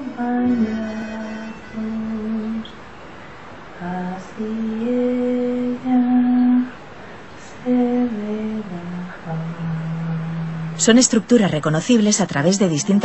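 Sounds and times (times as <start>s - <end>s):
woman softly singing a lullaby: 0.0s - 2.8s, 3.8s - 6.8s.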